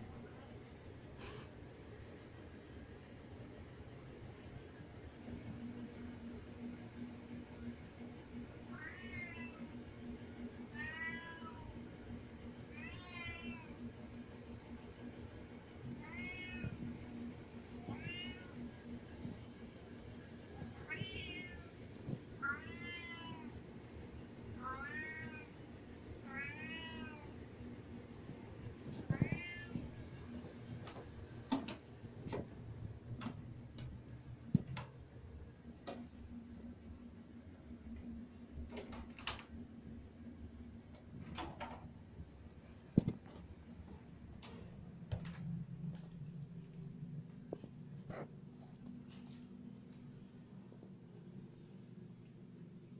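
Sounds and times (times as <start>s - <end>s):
cat meowing: 20.8s - 21.7s, 26.3s - 27.3s.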